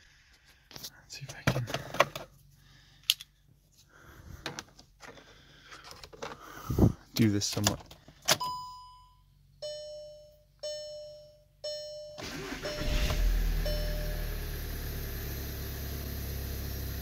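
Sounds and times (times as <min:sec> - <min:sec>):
dashboard warning chimes: 0:08.4 - 0:14.4
car engine cranking and idling: 0:12.2 - 0:17.0.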